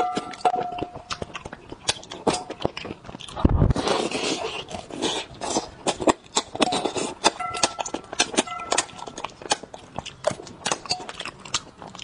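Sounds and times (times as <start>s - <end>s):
person chewing and sucking: 0.0s - 12.0s
wet mouth clicks and smacks: 4.5s - 12.0s.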